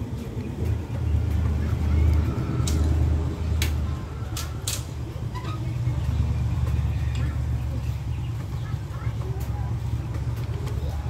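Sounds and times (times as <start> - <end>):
steady low rumble: 0.0 - 11.0
sharp metallic clicks: 1.1 - 7.6.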